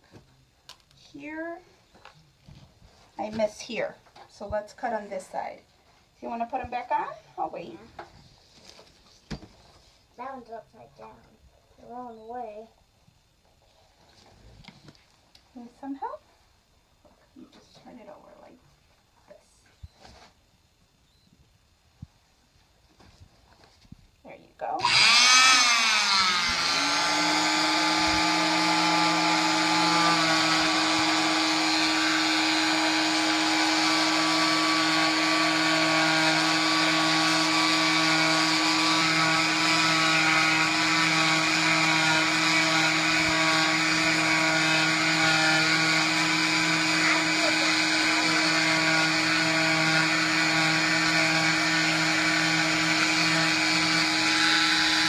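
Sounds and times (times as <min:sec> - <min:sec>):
dust extraction vacuum: 0:24.8 - 0:55.0
oscillating cast saw whining: 0:24.8 - 0:55.0.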